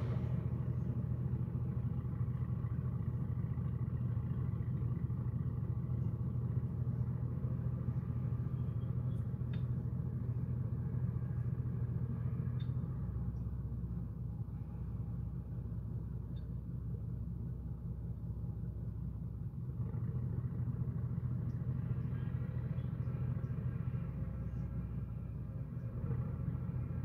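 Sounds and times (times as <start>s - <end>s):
low engine rumble: 0.0s - 27.0s
faint clicks: 9.2s - 9.8s, 12.6s - 12.9s.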